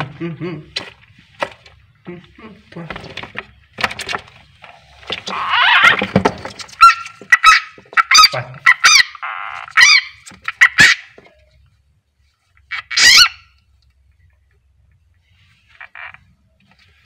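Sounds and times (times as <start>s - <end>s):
frog distress screams: 5.3s - 6.1s, 6.8s - 11.0s, 12.7s - 13.5s.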